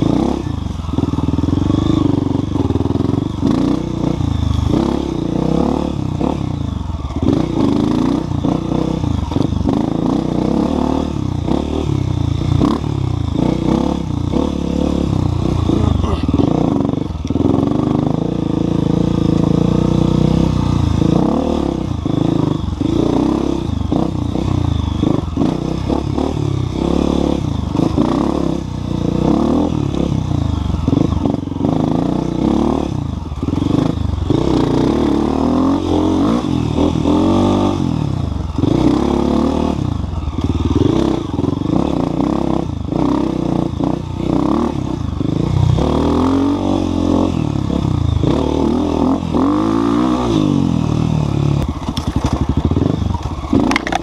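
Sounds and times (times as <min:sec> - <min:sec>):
dirt bike engine revving: 0:00.0 - 0:54.0
bike clattering over ground: 0:51.8 - 0:52.6.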